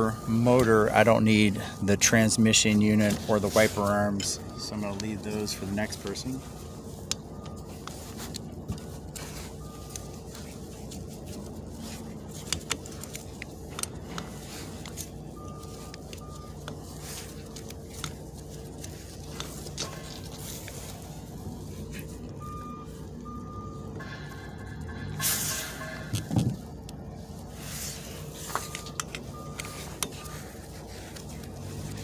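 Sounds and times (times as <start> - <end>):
low mechanical hum: 0.0 - 32.0
faint high beeps: 4.1 - 7.8, 22.4 - 26.2.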